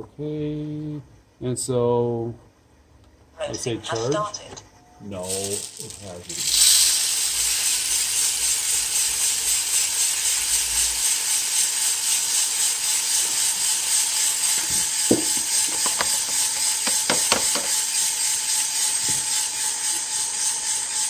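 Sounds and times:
coffee beans rattling in drum: 5.2 - 21.0.

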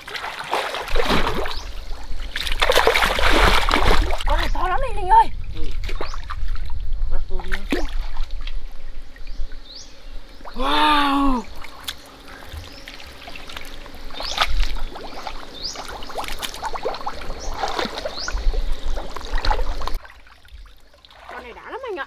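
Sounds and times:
muddy water splashing: 0.0 - 9.2, 10.4 - 22.0.

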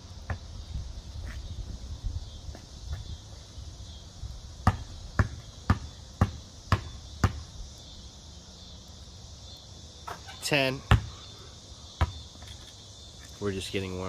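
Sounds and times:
basketball dribbling on concrete: 4.6 - 7.5, 10.9 - 11.1, 12.0 - 12.3.

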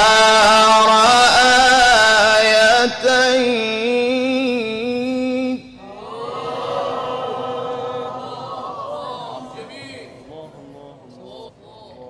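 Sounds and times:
person reciting melismatically: 0.0 - 5.8
crowd calling out together: 5.8 - 10.2.

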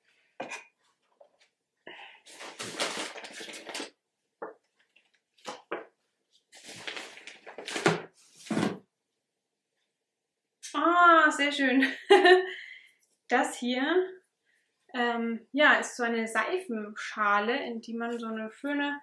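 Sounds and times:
packaging rustling and knocking: 6.6 - 8.8.

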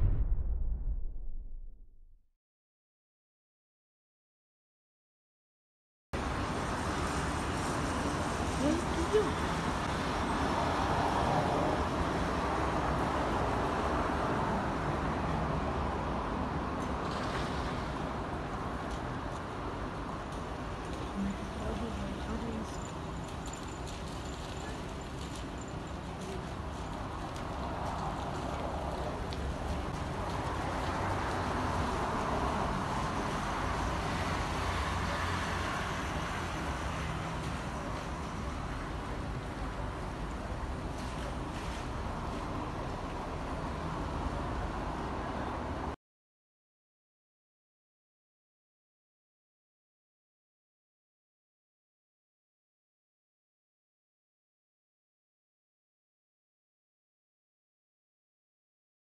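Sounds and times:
city street traffic hum: 6.2 - 46.0.

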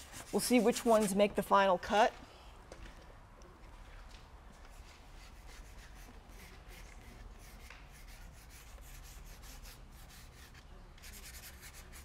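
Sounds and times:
paintbrush scrubbing on paper: 0.0 - 1.2, 5.2 - 12.0.

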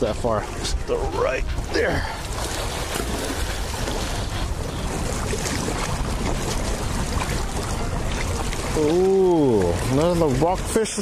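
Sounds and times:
water lapping against rocks: 0.0 - 11.0
wind buffeting microphone: 0.0 - 11.0.

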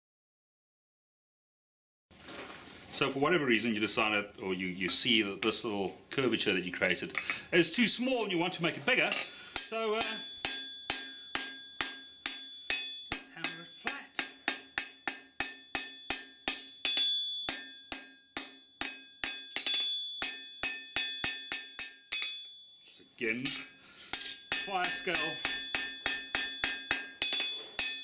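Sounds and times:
hammer striking steel on anvil: 9.0 - 22.6, 23.5 - 28.0.

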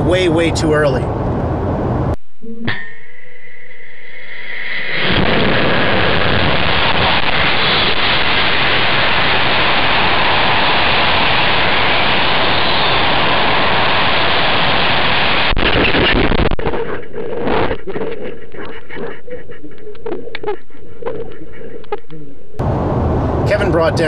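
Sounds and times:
loud rumbling: 0.0 - 2.2, 5.0 - 16.6, 22.6 - 24.0
rocket motor roaring: 4.2 - 18.6
air rushing over microphone: 22.6 - 24.0.

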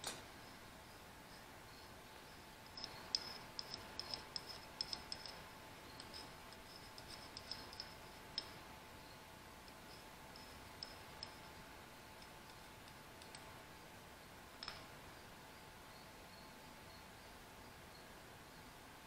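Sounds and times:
light clicks and scrapes of metal on stone: 1.3 - 8.7, 9.6 - 13.6, 14.6 - 14.9.

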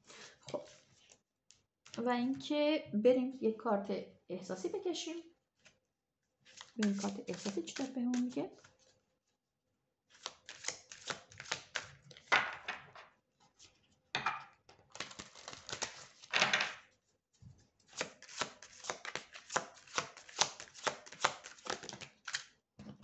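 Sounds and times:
cards clicking and flicking: 6.5 - 8.4, 10.2 - 11.9, 18.0 - 22.5
cards riffling: 14.9 - 16.3, 18.0 - 22.5.

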